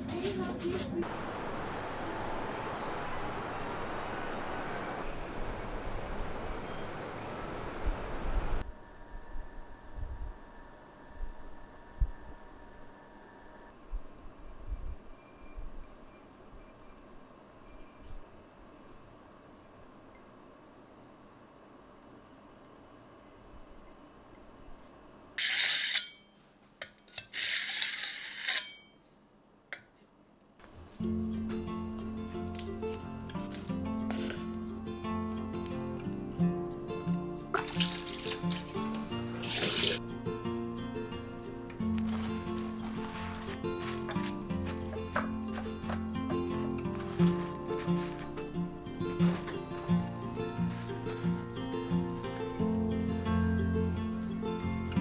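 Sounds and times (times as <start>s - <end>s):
background noise: 0.0s - 55.0s
insects chirping: 1.1s - 13.7s, 37.7s - 40.1s.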